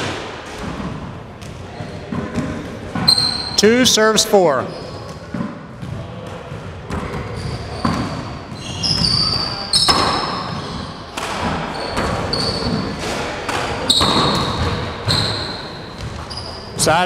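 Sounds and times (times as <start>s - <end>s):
sneakers squeaking on wood floor: 0.0s - 17.0s
handball smacking off walls: 5.0s - 16.4s.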